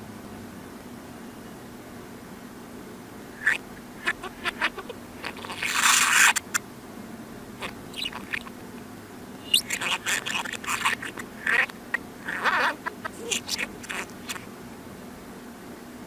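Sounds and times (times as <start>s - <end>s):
reversed budgerigar chirps: 3.4s - 6.6s, 7.6s - 8.6s, 9.4s - 14.5s
scratchy burst: 3.4s - 6.6s, 7.6s - 8.5s, 9.4s - 14.5s.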